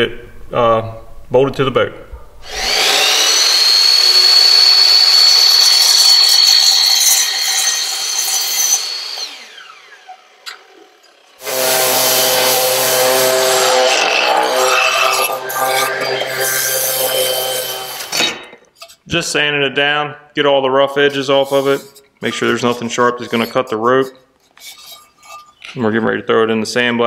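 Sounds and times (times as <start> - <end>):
detail sander running: 2.4 - 18.2
miter saw cutting metal: 2.4 - 19.0.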